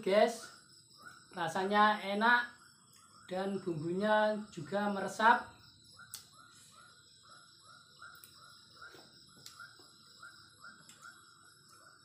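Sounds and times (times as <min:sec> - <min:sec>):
faint high whine: 0:00.0 - 0:12.0.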